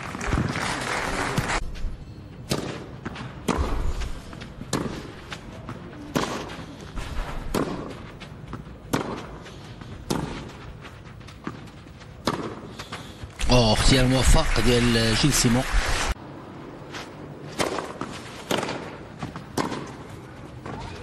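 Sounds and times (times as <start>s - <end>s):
tennis ball hits: 2.4s - 4.0s, 4.7s - 5.1s, 5.7s - 6.6s, 7.5s - 9.4s, 10.0s - 10.5s, 12.2s - 12.7s, 17.5s - 20.0s.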